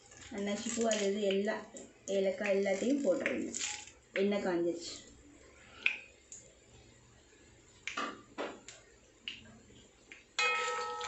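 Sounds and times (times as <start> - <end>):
spices clinking into pot: 10.4 - 11.0.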